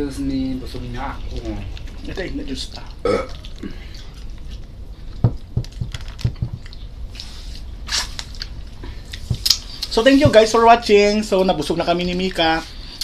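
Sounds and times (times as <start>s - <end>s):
chewing and wet squishing: 0.0s - 10.2s.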